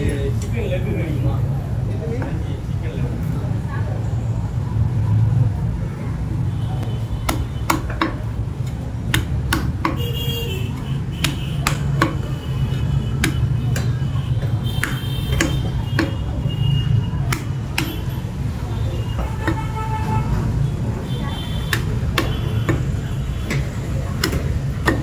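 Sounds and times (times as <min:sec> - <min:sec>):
cleaver chopping on wooden block: 0:07.2 - 0:10.1, 0:10.7 - 0:16.3, 0:17.3 - 0:18.1, 0:19.2 - 0:19.8, 0:21.6 - 0:25.0.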